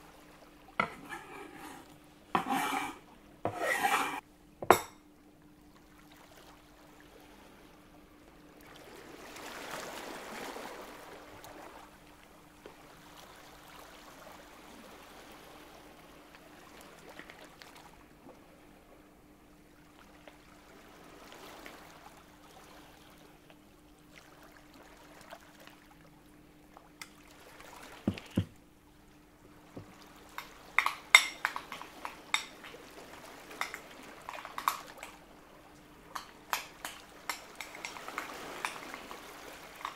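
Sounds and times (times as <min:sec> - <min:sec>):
faint steady hum: 0:00.0 - 0:39.9
utensils clinking against dishes: 0:00.8 - 0:01.8
soft knocks: 0:28.1 - 0:28.6.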